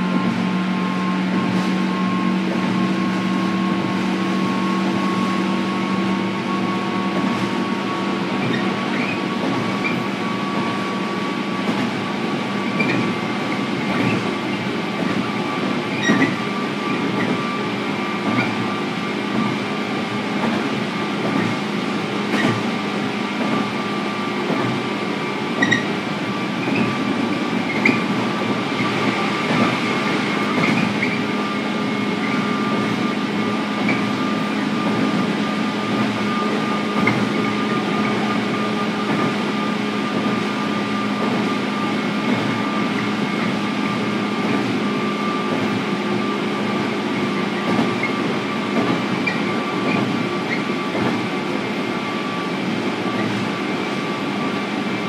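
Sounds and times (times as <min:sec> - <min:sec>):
train motor hum and whine: 0:00.0 - 0:55.0
train rolling roar: 0:00.0 - 0:55.0.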